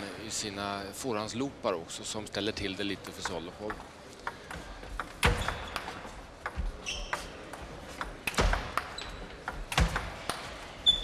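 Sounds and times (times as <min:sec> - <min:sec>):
short high squeaks: 0:06.8 - 0:07.4.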